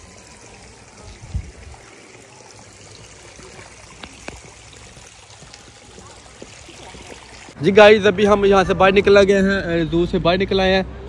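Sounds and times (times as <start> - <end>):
water trickling into a pond: 0.0 - 7.6.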